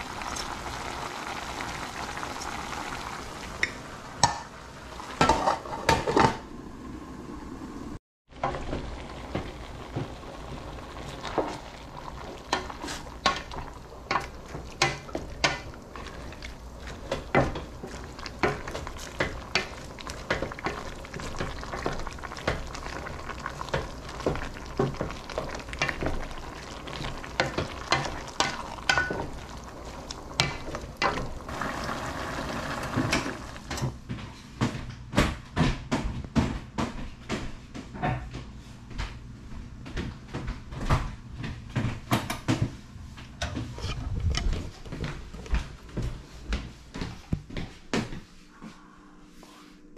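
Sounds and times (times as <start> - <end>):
food sizzling: 0.0 - 33.9
wooden spatula clacking against pot: 12.5 - 22.7.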